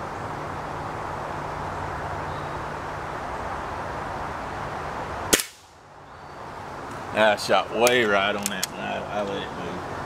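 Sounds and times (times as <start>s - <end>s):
background hum and hiss: 0.0s - 10.0s
pellet rifle crack: 5.3s - 5.7s.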